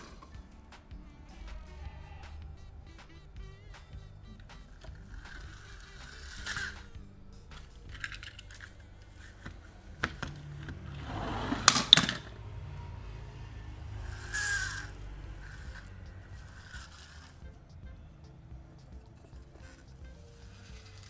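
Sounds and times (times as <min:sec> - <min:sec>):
plastic toy trucks clicking: 0:04.4 - 0:12.4, 0:14.1 - 0:17.5
toy cars rattling in box: 0:04.6 - 0:12.3, 0:14.0 - 0:17.5
short scrape: 0:10.9 - 0:12.0.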